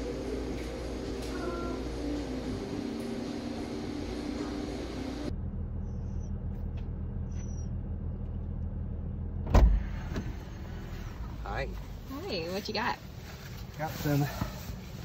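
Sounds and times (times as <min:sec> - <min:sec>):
car idling from inside: 0:00.0 - 0:15.0
loud thump: 0:09.4 - 0:10.3.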